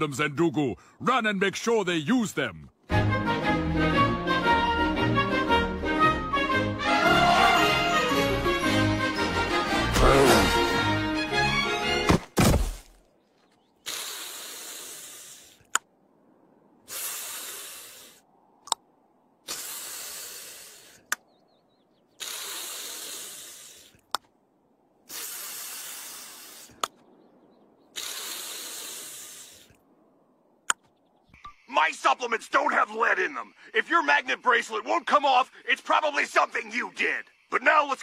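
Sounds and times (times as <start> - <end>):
orchestral cartoon chase music: 2.9 - 12.0
man hissing in pain: 10.0 - 10.6.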